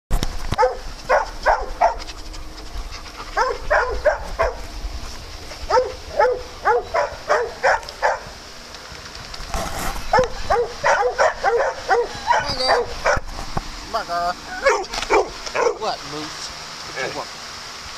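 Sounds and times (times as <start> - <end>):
dog barking: 0.6 - 2.1, 3.4 - 4.6, 5.7 - 8.3, 10.1 - 13.3, 14.6 - 15.8.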